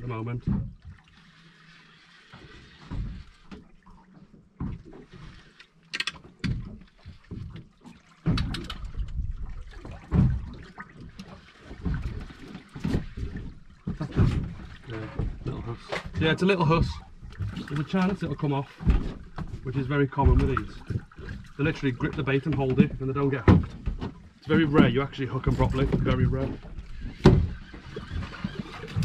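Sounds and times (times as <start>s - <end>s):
water sloshing against boat: 0.0s - 29.0s
sharp clicks and knocks: 5.9s - 6.8s, 8.2s - 9.2s.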